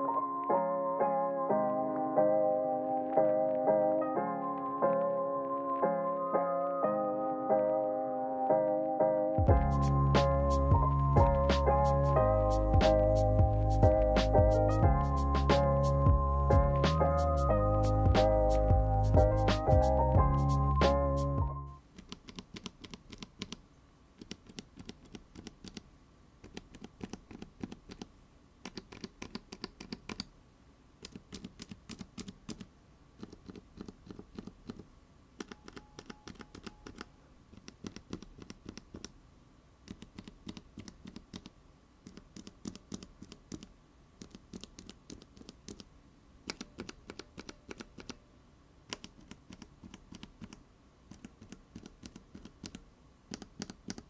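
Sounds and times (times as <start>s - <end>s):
keyboard switches clicking: 26.4s - 30.3s, 35.4s - 39.1s, 46.5s - 48.2s, 48.9s - 54.0s.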